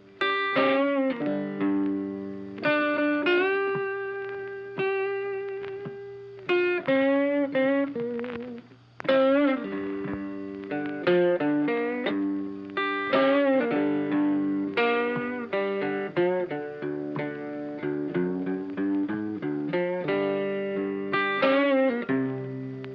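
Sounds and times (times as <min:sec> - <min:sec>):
guitar playing slow riff: 0:00.0 - 0:22.9.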